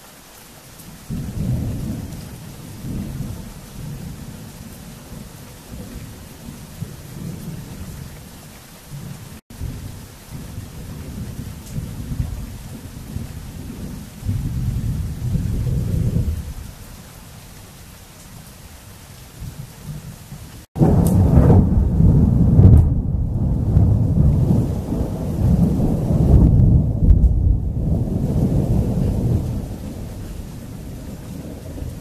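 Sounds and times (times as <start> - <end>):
thunder rumbling: 1.1 - 8.3, 8.9 - 17.0, 19.4 - 32.0
loud close thunder peal: 20.7 - 32.0.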